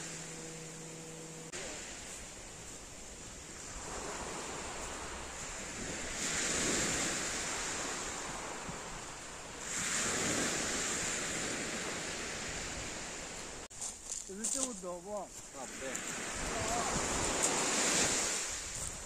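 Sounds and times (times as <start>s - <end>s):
waves washing over pebble beach: 3.5s - 13.3s, 15.6s - 18.8s.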